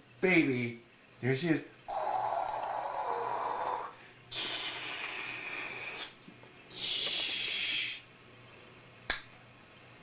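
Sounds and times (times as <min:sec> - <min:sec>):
man blowing hissing whoosh: 0:01.9 - 0:08.1.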